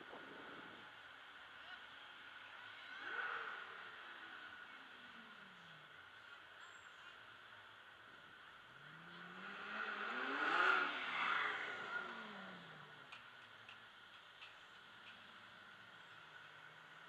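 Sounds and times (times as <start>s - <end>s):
car engine accelerating past: 8.7s - 13.2s.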